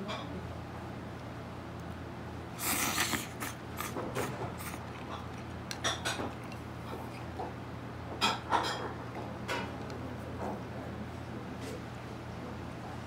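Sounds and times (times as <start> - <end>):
noodles slurped: 2.6 - 7.4
chopsticks and spoon clinking on bowl: 4.2 - 7.5.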